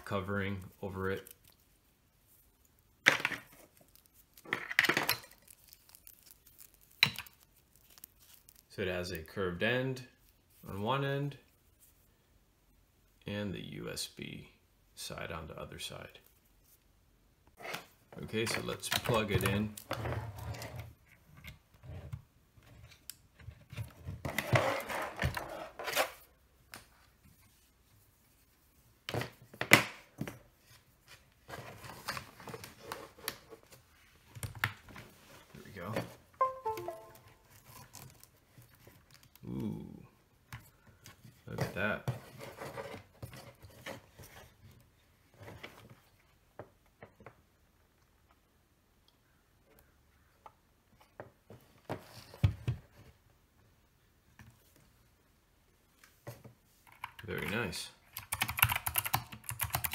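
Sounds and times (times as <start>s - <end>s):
mechanical keyboard clicks: 58.2s - 59.9s.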